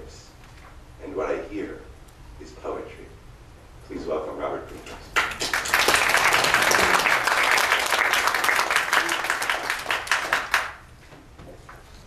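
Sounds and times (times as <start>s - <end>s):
audience applauding: 5.1s - 10.8s.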